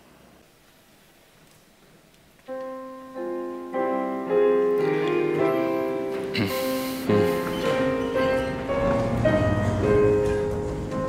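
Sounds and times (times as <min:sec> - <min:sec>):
piano chords: 0:02.4 - 0:11.0.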